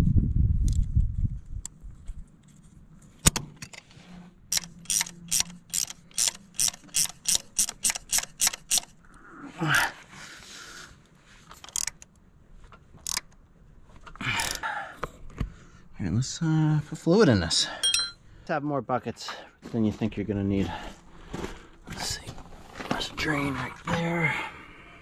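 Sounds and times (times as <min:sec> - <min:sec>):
rustling and scraping of tools: 0:01.8 - 0:09.0, 0:10.0 - 0:15.7, 0:19.2 - 0:24.3
wrench ratchet clicks: 0:04.5 - 0:08.9, 0:11.6 - 0:12.1, 0:13.0 - 0:13.3
wrench clinking on clamp: 0:17.8 - 0:18.2.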